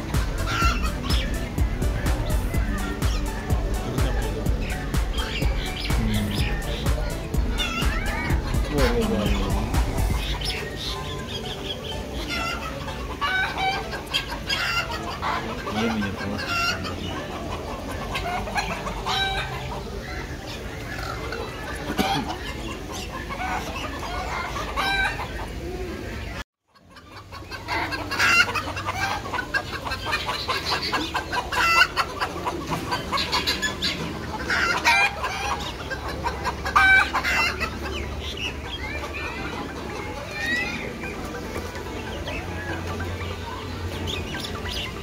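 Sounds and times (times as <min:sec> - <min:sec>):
background bird noise: 0:00.0 - 0:45.0
chickens clucking: 0:00.0 - 0:45.0
loud bird calls: 0:00.0 - 0:45.0.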